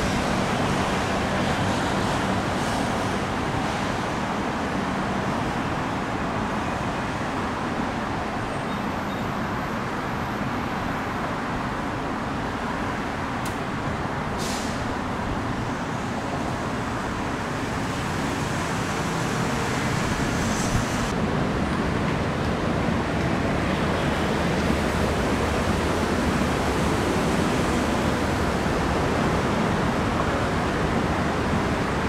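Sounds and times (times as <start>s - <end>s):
diesel locomotive rumbling: 0.0s - 8.5s, 9.1s - 32.0s
road traffic: 0.0s - 32.0s.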